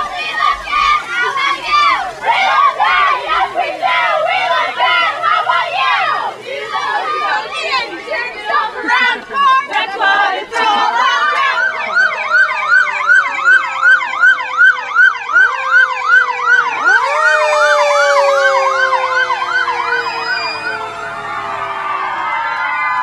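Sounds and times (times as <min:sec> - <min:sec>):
siren yelp: 0:11.0 - 0:23.0
steady falling siren tone: 0:11.0 - 0:23.0.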